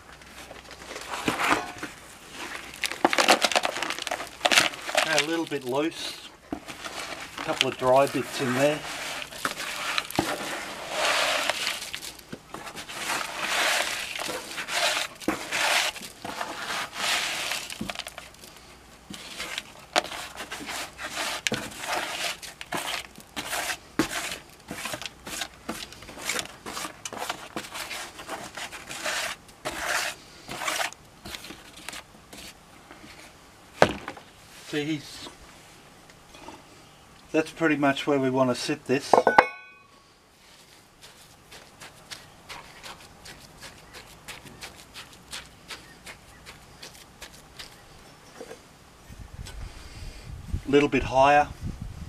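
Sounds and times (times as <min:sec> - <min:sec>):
wet concrete scraping in plastic tub: 0:00.2 - 0:33.4, 0:40.5 - 0:48.6
clicks of mix against plastic: 0:02.5 - 0:05.8.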